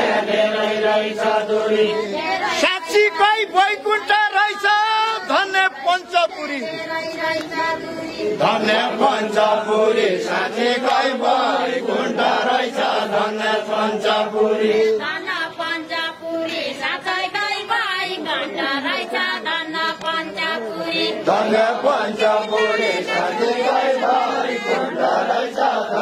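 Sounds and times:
group singing in unison: 0:00.0 - 0:26.0.

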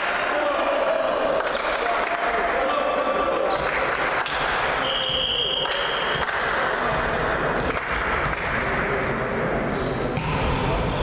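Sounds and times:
volleyball hits: 0:03.0 - 0:09.0, 0:10.0 - 0:11.0.

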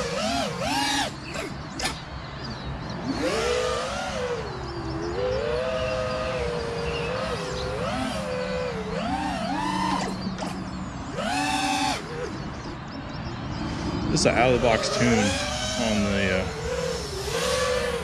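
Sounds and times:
quadcopter motors whining: 0:00.0 - 0:18.0.

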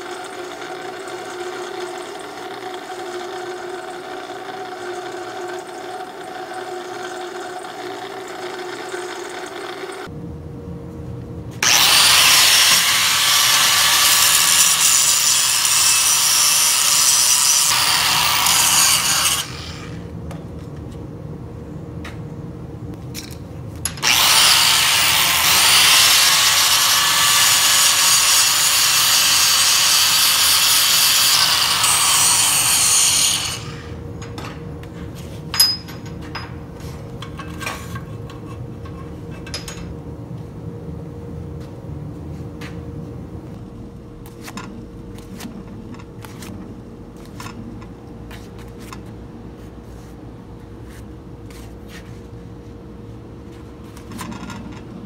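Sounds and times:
angle grinder cutting steel: 0:00.0 - 0:10.1, 0:11.6 - 0:20.0, 0:23.9 - 0:34.0.

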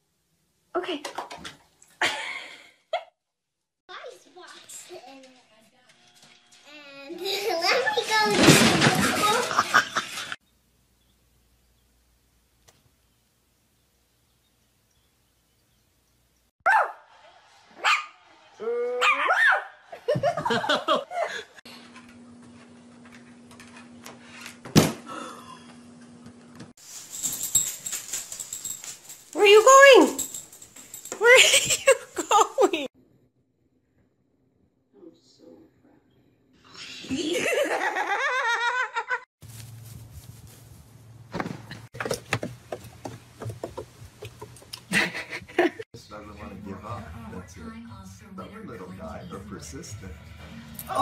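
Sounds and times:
person laughing hard: 0:20.0 - 0:21.6, 0:44.9 - 0:45.8
knocks and clicks: 0:41.4 - 0:44.8.

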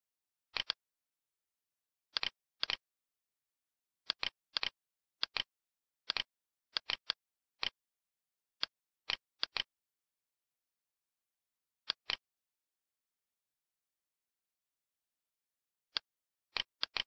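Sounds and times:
computer mouse clicks: 0:00.6 - 0:00.8, 0:02.2 - 0:02.8, 0:04.1 - 0:05.5, 0:06.1 - 0:07.8, 0:09.1 - 0:09.7, 0:11.9 - 0:12.2, 0:15.9 - 0:17.0.

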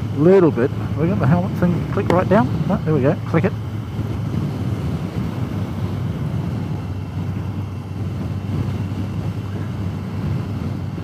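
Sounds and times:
motorcycle engine hum: 0:00.0 - 0:11.0
wind rush: 0:00.0 - 0:11.0.

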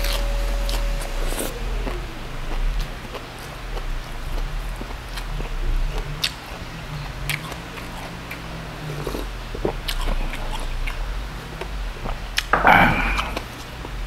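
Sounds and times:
person chewing crunchy food: 0:00.0 - 0:14.0
person sipping broth: 0:07.3 - 0:10.9, 0:12.0 - 0:13.6.

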